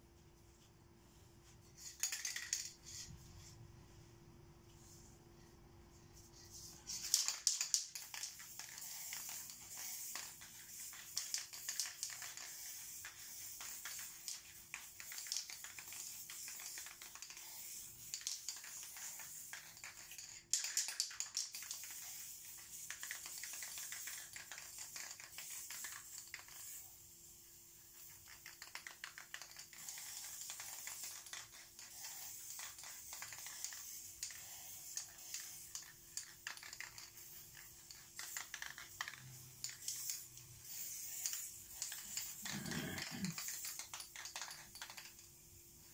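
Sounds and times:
spray paint cans hissing: 0:01.1 - 0:03.6, 0:06.2 - 0:45.9
rapid clicking and rattling: 0:28.0 - 0:45.3.

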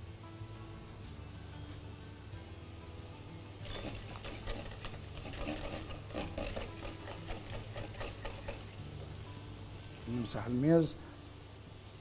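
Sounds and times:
utensil scraping a bowl: 0:03.6 - 0:08.8.

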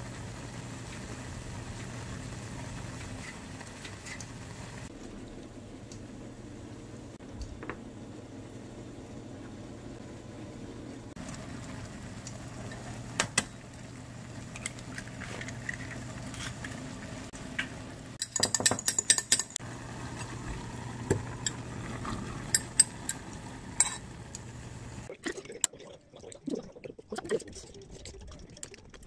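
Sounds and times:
dishes and cutlery clinking: 0:18.2 - 0:19.6.

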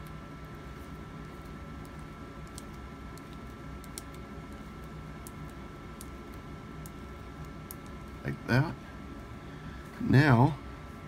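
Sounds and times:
wire nut clicks and scratches: 0:01.2 - 0:08.2.

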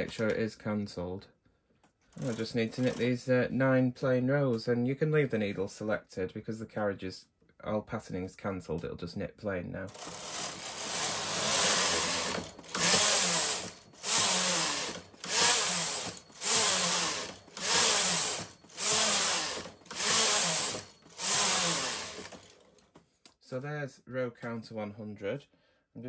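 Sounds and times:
knitting machine carriage rushing: 0:02.2 - 0:03.2, 0:09.9 - 0:22.8.

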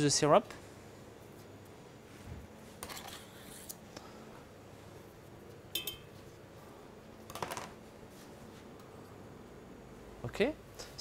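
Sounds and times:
faint background hum: 0:00.0 - 0:11.0
metallic clink: 0:05.8 - 0:06.1.

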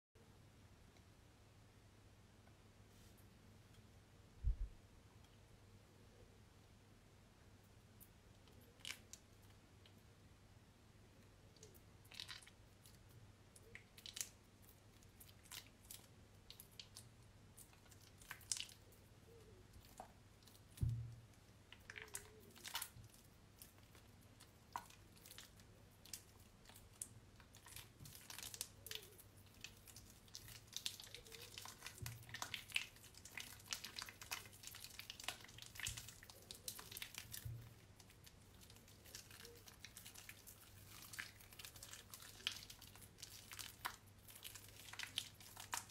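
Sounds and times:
wet soap squelching: 0:13.7 - 0:45.9.

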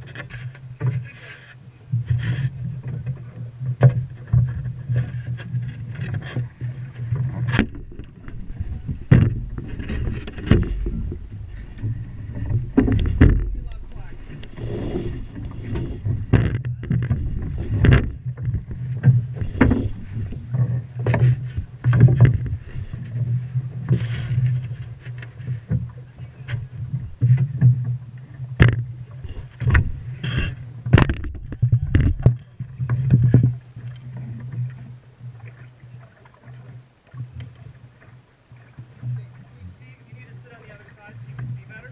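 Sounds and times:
rope knocking against boat hull: 0:07.2 - 0:13.8, 0:15.7 - 0:20.4, 0:28.6 - 0:34.0
steady low rumble: 0:07.6 - 0:23.6.

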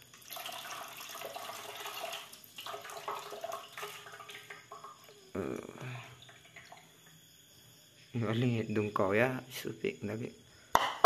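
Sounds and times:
water splashing into metal basin: 0:00.0 - 0:05.2.

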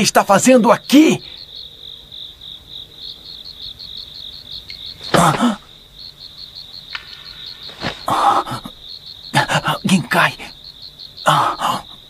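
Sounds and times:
crickets chirping: 0:00.0 - 0:12.0
loud vocal exclamation: 0:05.1 - 0:05.7.

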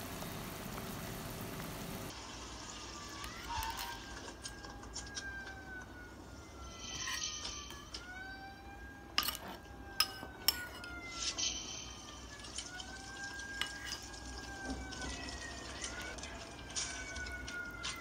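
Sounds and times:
siren wailing: 0:02.9 - 0:18.0
spoon clinking on ceramic bowl: 0:09.2 - 0:10.8.

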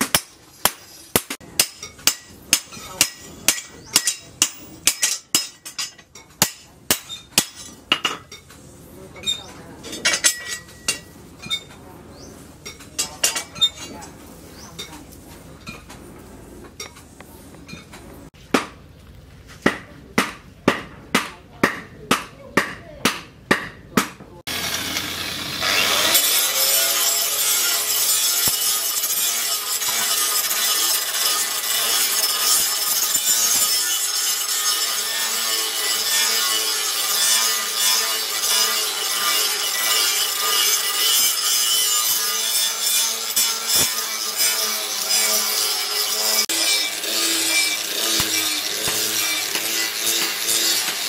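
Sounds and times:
angle grinder grinding steel: 0:24.5 - 0:51.0.

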